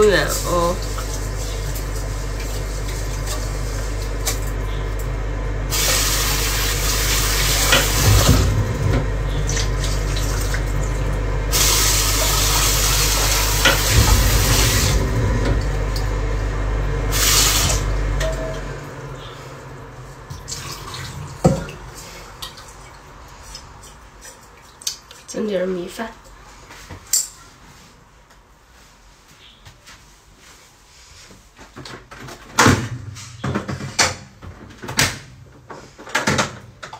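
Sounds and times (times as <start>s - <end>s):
steady low hum: 0.0s - 24.2s.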